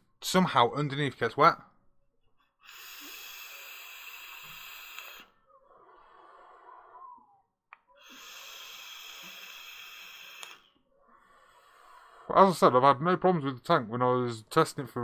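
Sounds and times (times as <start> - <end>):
breathy exhale: 2.6 - 12.5
airy hiss of vape draw: 2.7 - 5.3, 8.0 - 10.7.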